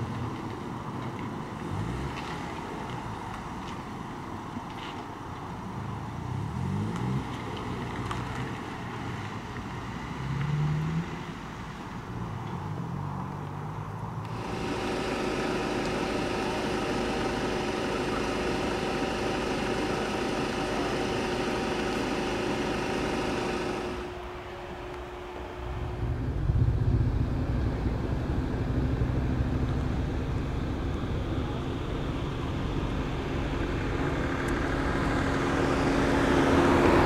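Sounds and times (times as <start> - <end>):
low shifting engine sound: 0.0 - 37.0
car engine idling: 14.2 - 37.0.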